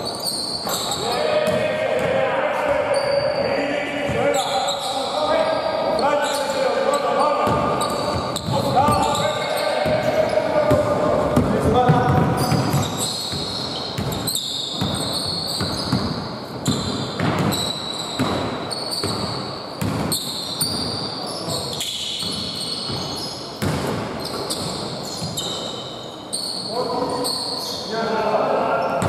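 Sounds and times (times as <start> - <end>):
sneakers squeaking on court: 0.0 - 27.9
basketball dribbling: 7.4 - 20.9.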